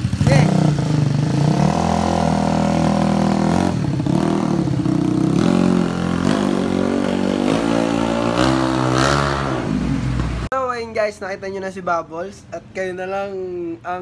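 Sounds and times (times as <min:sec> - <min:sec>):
scooter engine revving: 0:00.0 - 0:10.5.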